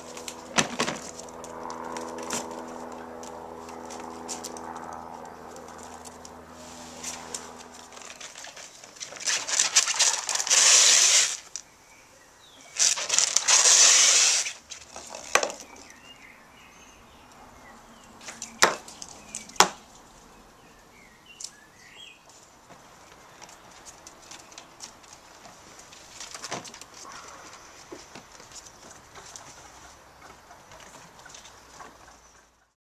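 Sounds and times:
ferrets rustling and scrabbling: 0.0s - 11.6s, 12.7s - 16.0s, 22.3s - 32.2s.

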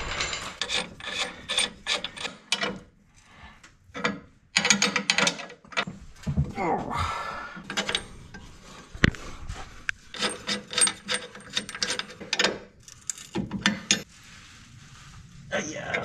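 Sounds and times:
hand tool scraping: 0.0s - 2.8s, 7.7s - 16.0s.

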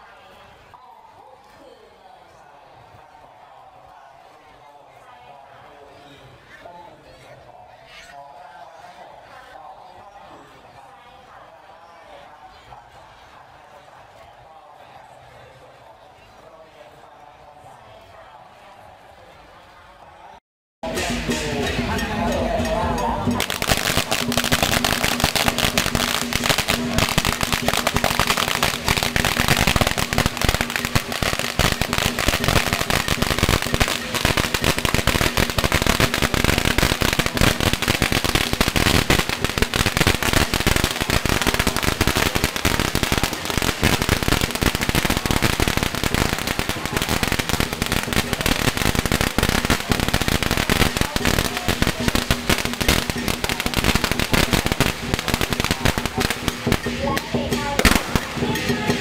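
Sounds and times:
firecrackers popping: 23.3s - 59.0s.

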